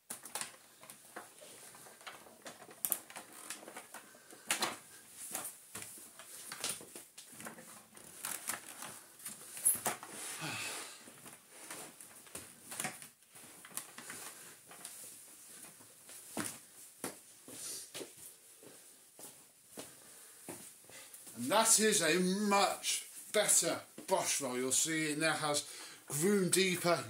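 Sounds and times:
plastic vacuum parts clicking: 0:01.8 - 0:04.8.

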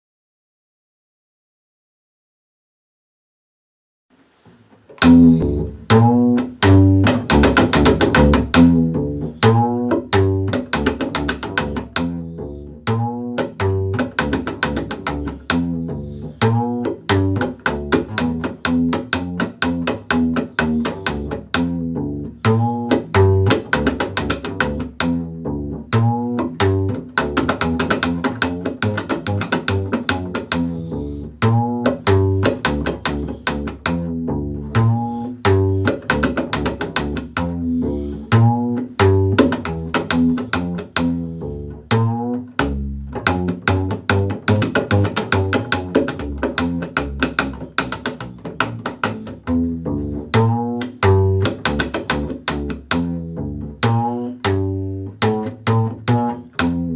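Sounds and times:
slap bass plucking: 0:04.8 - 0:56.9.

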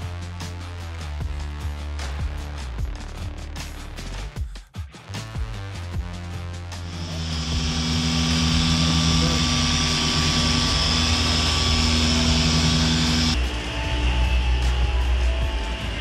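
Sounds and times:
machine droning: 0:06.8 - 0:16.0.

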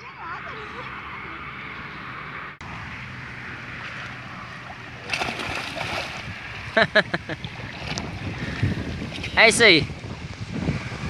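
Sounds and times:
water sloshing: 0:03.0 - 0:09.4
water splash: 0:03.6 - 0:09.4.

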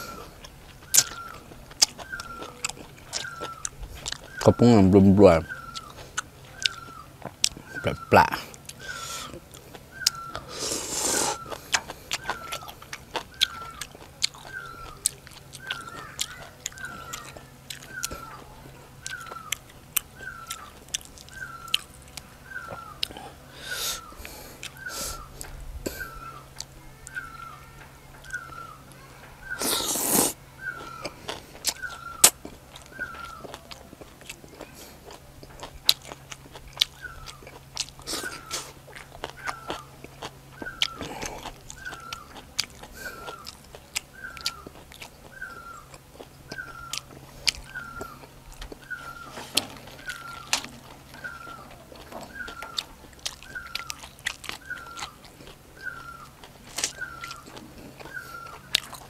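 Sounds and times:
wet chewing and crunching: 0:00.0 - 0:59.0
faint high chirp: 0:23.9 - 0:29.9, 0:43.2 - 0:59.0.

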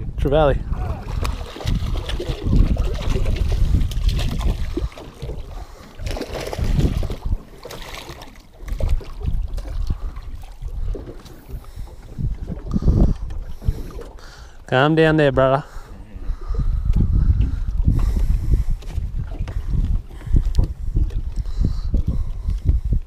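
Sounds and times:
wind buffeting microphone: 0:00.0 - 0:23.0
water slapping against boat: 0:00.7 - 0:14.5
fish splashing at surface: 0:01.0 - 0:10.6.

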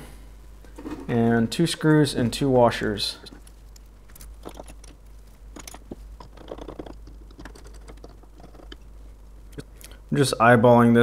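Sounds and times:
small screws clicking and tapping: 0:03.2 - 0:08.9.

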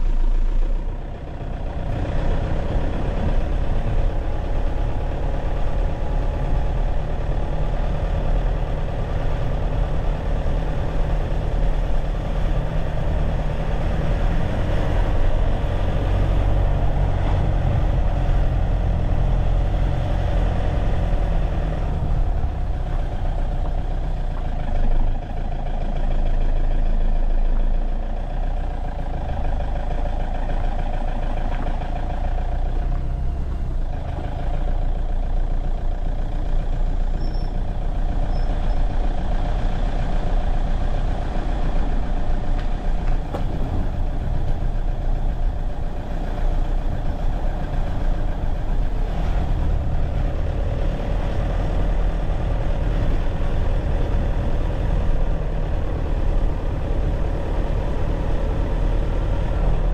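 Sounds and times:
car engine and road rumble: 0:00.0 - 0:59.9.

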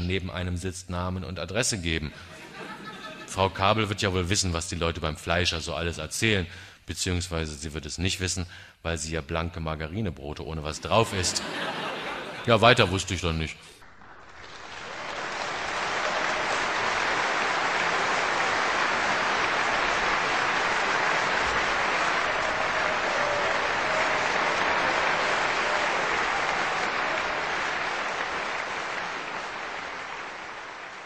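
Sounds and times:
audience applauding: 0:13.8 - 0:31.0.

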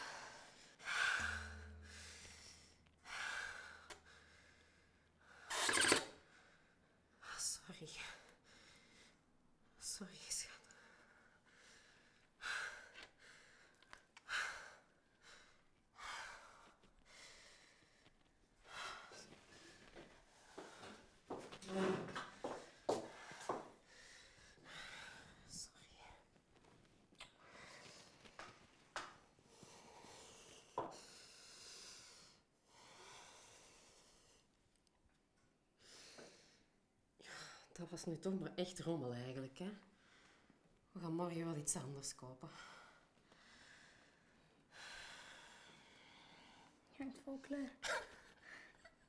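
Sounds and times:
person breathing heavily: 0:00.0 - 0:05.5
slow breathing: 0:00.0 - 0:05.6, 0:10.6 - 0:21.5, 0:22.2 - 0:26.3, 0:27.3 - 0:34.6, 0:42.5 - 0:46.9.

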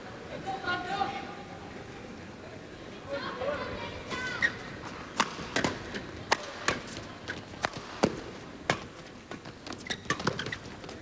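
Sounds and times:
rackets hitting shuttlecock: 0:05.1 - 0:09.0.

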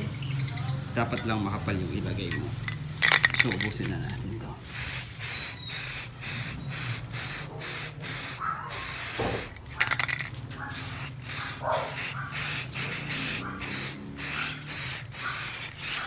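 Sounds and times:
aerosol spray can hissing: 0:04.7 - 0:16.0.

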